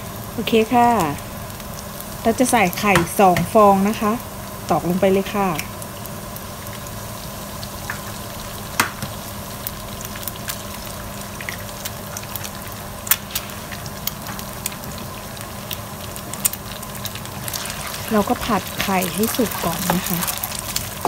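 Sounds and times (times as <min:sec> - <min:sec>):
oil sizzling in frying pan: 0:00.0 - 0:21.0
eggs cracking clicks: 0:15.6 - 0:17.6, 0:18.8 - 0:21.0.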